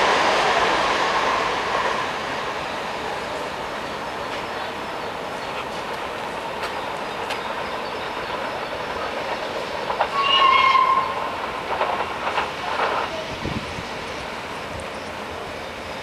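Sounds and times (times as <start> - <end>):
train running: 0.0 - 16.0
wheels clicking over rail joints: 5.5 - 15.1
train whistle blast: 10.1 - 11.3.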